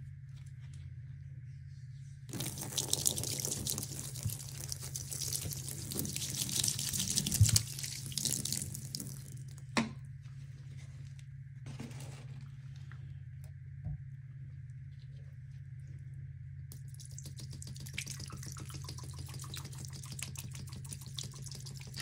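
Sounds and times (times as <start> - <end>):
steady low hum: 0.0 - 22.0
liquid pouring and splashing in sink: 2.3 - 9.6, 16.7 - 22.0.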